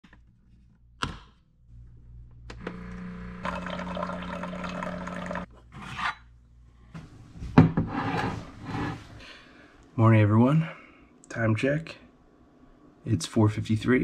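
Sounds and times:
coffee maker pump humming: 2.4s - 5.5s
hot water pouring into cup: 3.3s - 5.5s.

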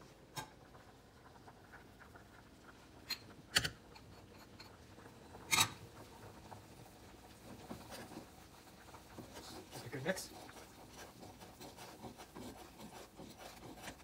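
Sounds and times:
utensil tapping cooking pot: 7.3s - 14.0s.

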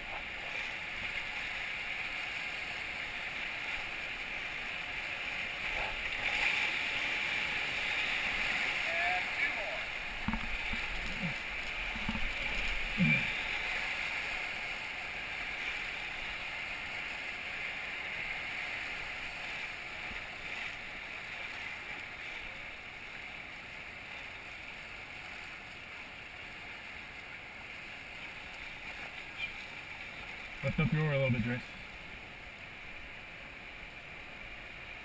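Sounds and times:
whitewater rushing: 0.0s - 35.0s.

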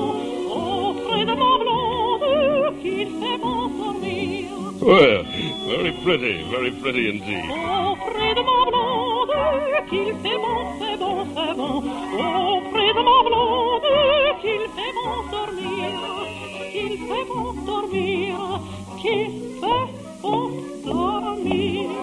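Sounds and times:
operatic orchestral music: 3.8s - 18.6s.

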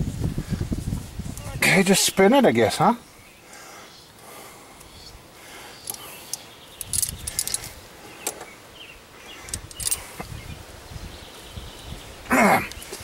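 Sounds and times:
light metallic clicks and clinks: 5.8s - 8.5s, 9.4s - 10.2s.

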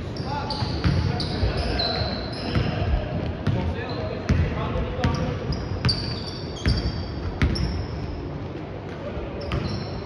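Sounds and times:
sneakers squeaking on floor: 0.0s - 8.3s, 9.4s - 10.0s
basketball bouncing on a court: 0.5s - 1.6s, 2.4s - 7.9s, 9.0s - 9.9s.

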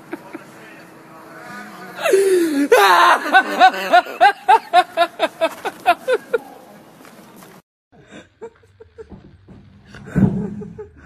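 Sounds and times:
person laughing hard: 2.0s - 6.4s.

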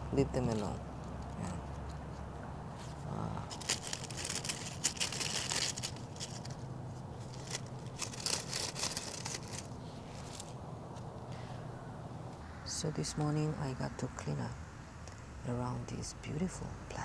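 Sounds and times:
gloved hand crinkling plant debris: 2.8s - 10.6s.

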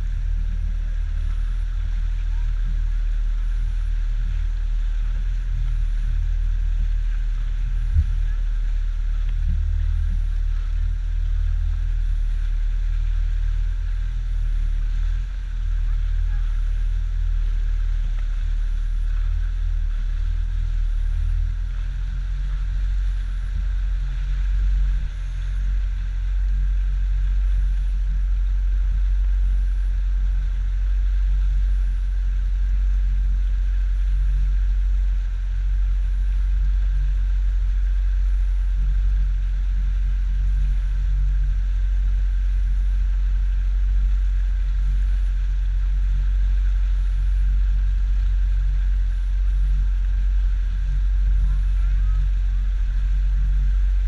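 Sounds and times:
outboard motor droning: 0.0s - 54.0s.

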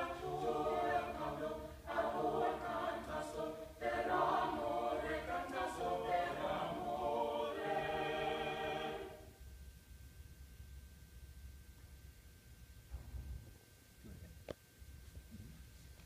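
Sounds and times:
choir singing a cappella: 0.0s - 9.4s.

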